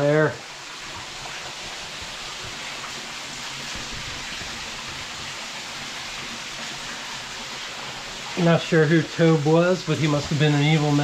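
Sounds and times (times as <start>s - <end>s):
creek water running over rocks: 0.0s - 11.0s.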